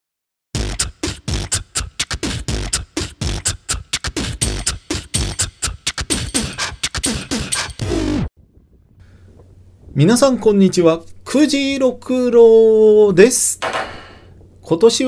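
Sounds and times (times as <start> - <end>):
beatbox vocal percussion: 0.6 - 7.8.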